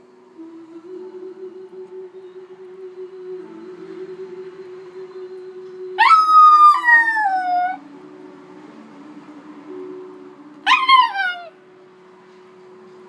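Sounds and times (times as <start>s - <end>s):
small dog howling: 6.0s - 7.8s, 10.6s - 11.5s.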